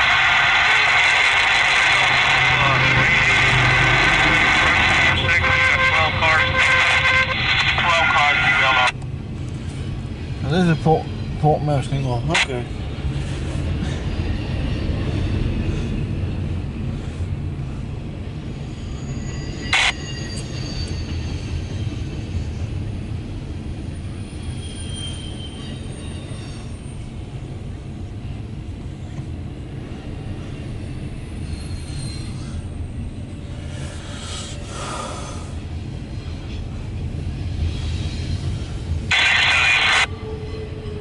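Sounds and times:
train wheels rumbling on rail: 0.0 - 41.0
high wheel squeals: 13.2 - 16.1, 18.4 - 23.0, 23.7 - 27.2, 30.4 - 33.8, 37.4 - 41.0.

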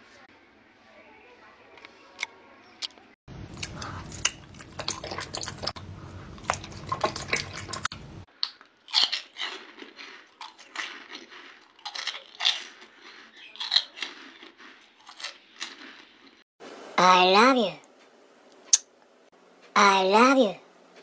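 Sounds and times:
chewing and biting: 2.2 - 16.4
gummy candies bitten and chewed: 2.2 - 16.4.

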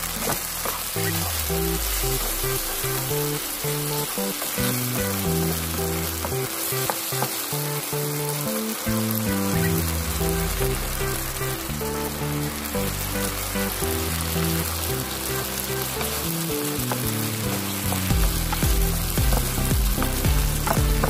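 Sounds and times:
background music: 0.0 - 21.0
octopus sizzling in sauce: 0.0 - 21.0.

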